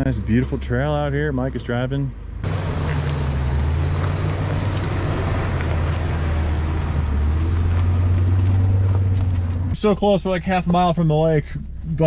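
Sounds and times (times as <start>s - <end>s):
truck engine rumble: 0.0s - 12.0s
tyres crunching over gravel: 2.4s - 10.1s.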